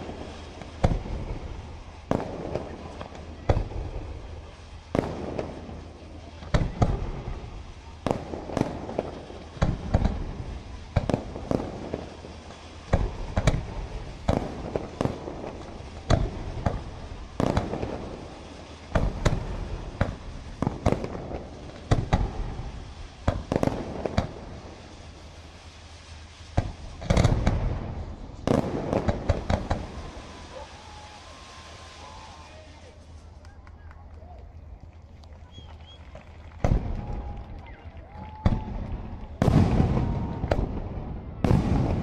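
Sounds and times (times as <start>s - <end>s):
firework shells bursting: 0.0s - 32.4s.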